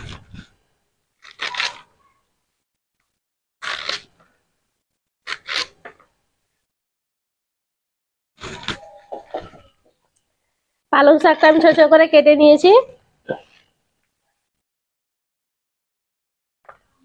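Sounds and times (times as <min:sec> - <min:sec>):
blade slicing spinach: 0:01.2 - 0:01.9, 0:03.6 - 0:04.2, 0:05.3 - 0:06.0.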